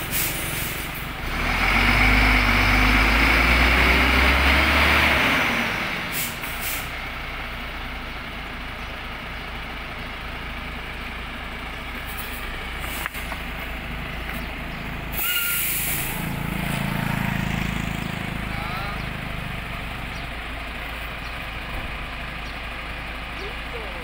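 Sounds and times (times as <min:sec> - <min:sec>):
truck diesel engine running: 0:00.0 - 0:24.0
air hiss: 0:15.2 - 0:16.2.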